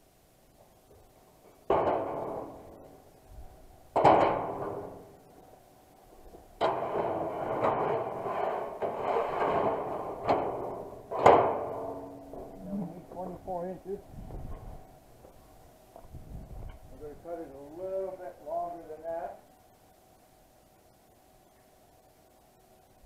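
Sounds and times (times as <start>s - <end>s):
loud metal clangs: 1.7s - 2.8s, 3.9s - 5.1s, 6.6s - 12.6s
metal sheet rattling: 1.7s - 2.9s, 4.0s - 5.2s, 6.6s - 12.6s.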